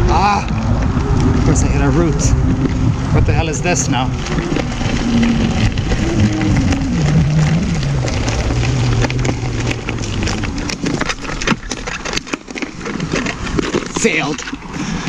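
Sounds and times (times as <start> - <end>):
wheel clattering over stones: 1.2 - 15.0
electric motor whining: 4.2 - 12.1.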